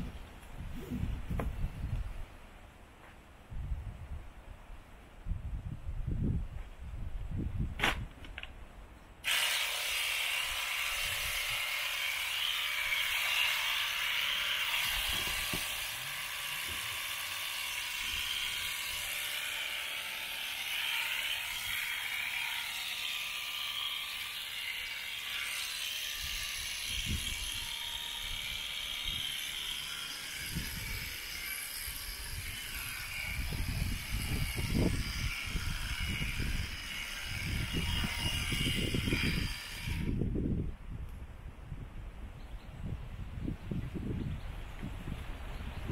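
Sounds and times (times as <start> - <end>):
electric shears whirring buzz: 9.2 - 40.2.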